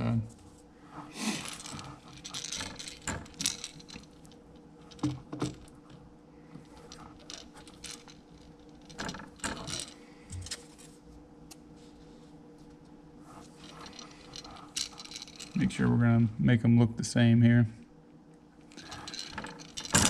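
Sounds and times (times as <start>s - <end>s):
faint steady hum: 0.0s - 20.0s
metal stand arms clicking and rattling: 1.4s - 6.0s, 6.6s - 10.6s, 13.4s - 15.9s, 18.7s - 20.0s.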